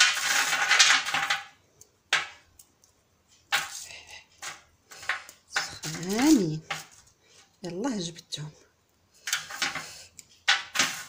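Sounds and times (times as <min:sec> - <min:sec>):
baking paper crinkling: 0:00.0 - 0:01.6, 0:03.5 - 0:07.4, 0:09.1 - 0:11.0
crackers clattering on a tray: 0:00.0 - 0:02.7, 0:03.4 - 0:07.2, 0:09.2 - 0:11.0.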